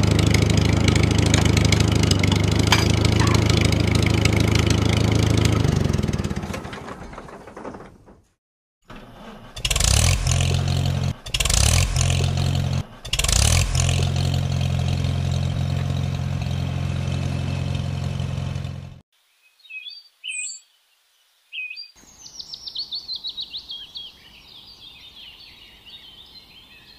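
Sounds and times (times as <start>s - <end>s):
tractor engine running: 0.0s - 19.0s
birds chirping: 19.2s - 26.9s.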